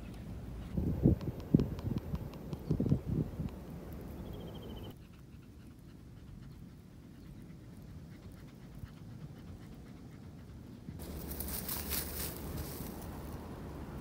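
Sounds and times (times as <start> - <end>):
dog panting softly: 4.9 - 11.0.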